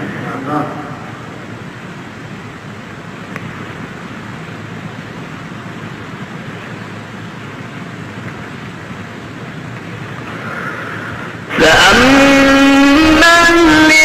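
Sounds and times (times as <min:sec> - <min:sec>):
hiss: 0:10.2 - 0:11.6.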